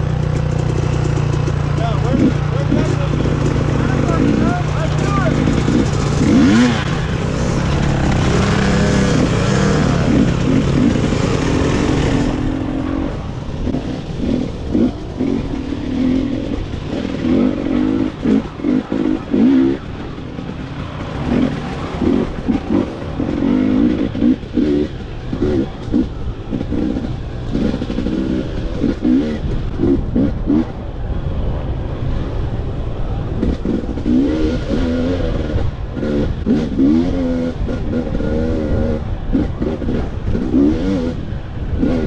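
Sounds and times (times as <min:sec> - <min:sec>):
dirt bike engines revving: 0:00.0 - 0:42.0.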